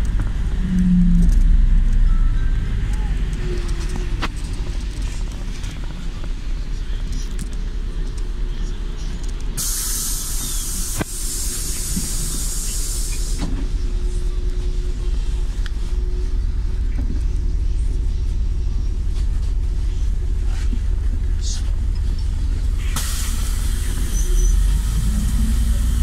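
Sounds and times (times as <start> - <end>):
bus engine running: 0.0 - 26.0
compressed air hiss: 9.6 - 13.5, 23.0 - 25.2.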